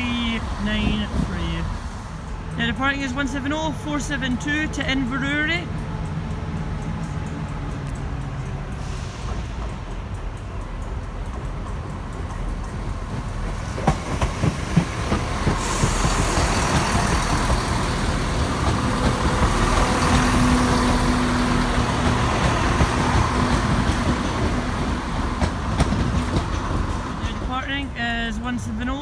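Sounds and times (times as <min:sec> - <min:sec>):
diesel train engines droning: 0:00.0 - 0:29.0
train wheel clicks over rail joints: 0:03.9 - 0:27.7.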